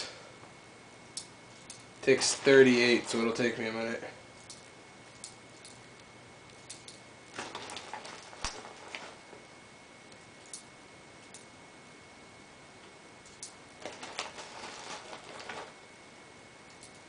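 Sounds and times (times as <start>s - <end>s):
handling noise: 6.9s - 9.5s, 13.3s - 15.9s.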